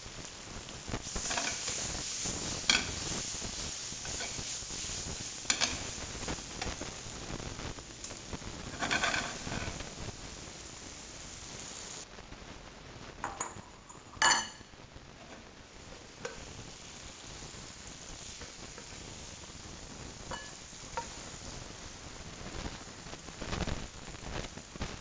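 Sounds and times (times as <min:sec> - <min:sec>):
chilies sizzling in oil: 0:00.0 - 0:25.0
utensil clinking on dish: 0:13.3 - 0:14.7.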